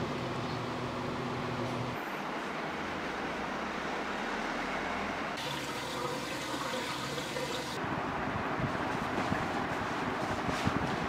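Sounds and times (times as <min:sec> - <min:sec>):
water running: 0:05.4 - 0:07.8.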